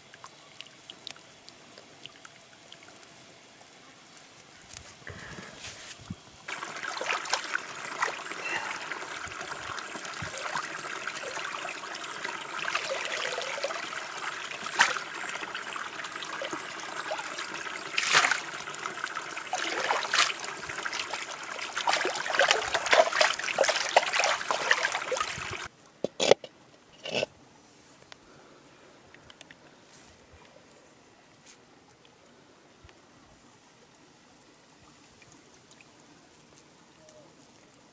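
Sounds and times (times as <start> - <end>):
water pouring and splashing: 6.0 - 26.4.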